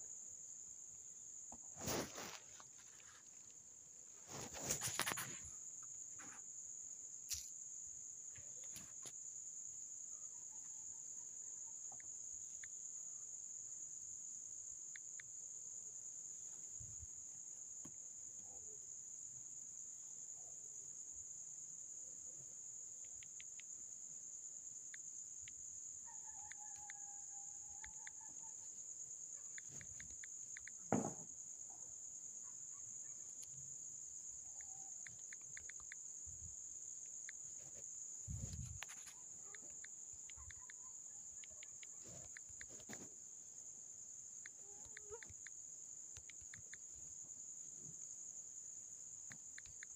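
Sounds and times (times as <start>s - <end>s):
high-pitched insect trilling: 22.0s - 43.2s, 44.1s - 49.9s
faint clicks: 29.5s - 30.8s, 34.6s - 36.0s, 38.5s - 43.1s, 44.4s - 46.9s, 49.3s - 49.9s
short thump: 30.9s - 31.3s.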